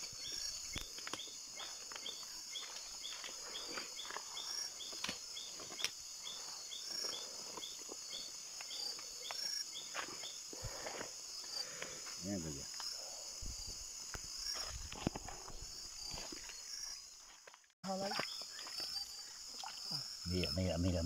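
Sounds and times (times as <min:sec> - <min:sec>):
insect chirping: 0:00.0 - 0:21.0
insect drone: 0:00.0 - 0:21.0.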